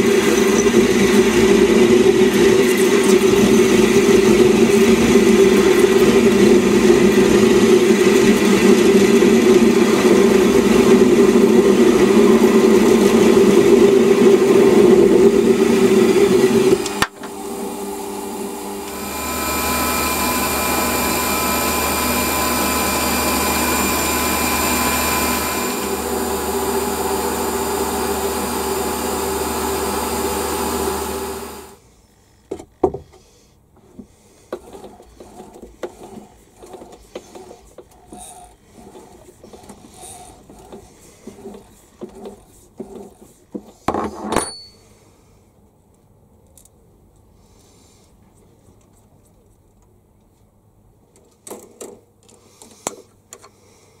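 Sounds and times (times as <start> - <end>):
metal lathe cutting: 0.0 - 31.8.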